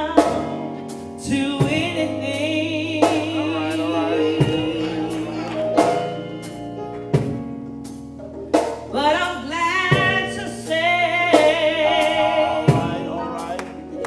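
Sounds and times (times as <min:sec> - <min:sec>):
woman singing gospel: 0:00.0 - 0:07.0, 0:08.9 - 0:14.0
slow steady drum beat: 0:00.0 - 0:14.0
sustained chords: 0:01.9 - 0:08.0.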